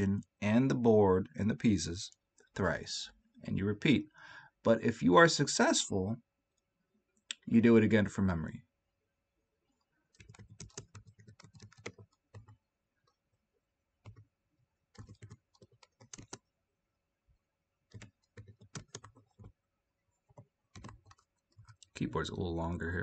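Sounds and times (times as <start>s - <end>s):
typing on computer keyboard: 10.1s - 13.2s, 14.0s - 14.3s, 14.9s - 16.4s, 17.9s - 19.6s, 20.3s - 22.0s.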